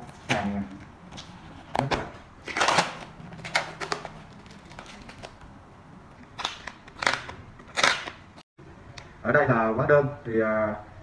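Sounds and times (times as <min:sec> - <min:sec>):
plastic and cardboard rustling: 0:00.0 - 0:05.5.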